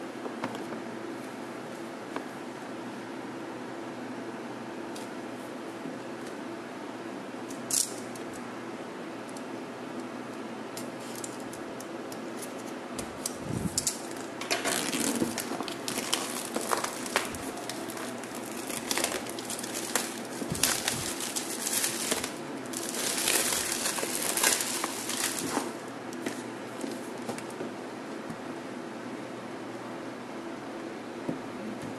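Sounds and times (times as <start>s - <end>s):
low fan hum: 0.0s - 31.9s
plastic wrap crinkling: 13.5s - 27.6s.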